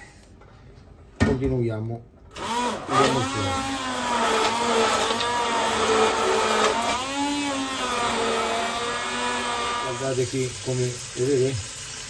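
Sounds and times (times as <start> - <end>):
immersion blender motor whine: 2.3 - 10.2.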